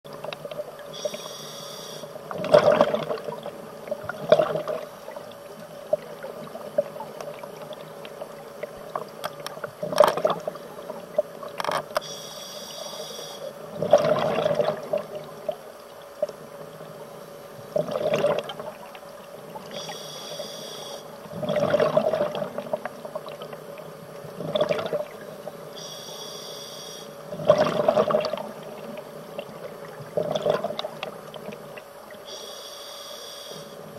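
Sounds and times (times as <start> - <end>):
regulator hiss on inhale: 0.9 - 2.2, 12.0 - 13.6, 19.7 - 21.2, 25.7 - 27.2, 32.2 - 33.9
exhaled bubbles underwater: 2.2 - 11.6, 13.5 - 20.0, 21.1 - 25.7, 27.2 - 32.3.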